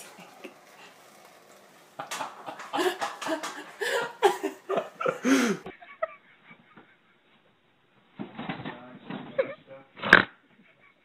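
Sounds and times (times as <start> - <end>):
person laughing: 2.0 - 7.0.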